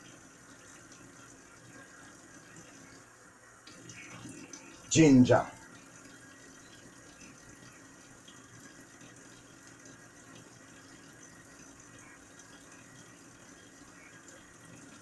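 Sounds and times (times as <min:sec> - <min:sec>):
faucet running into metal sink: 0:03.7 - 0:15.0.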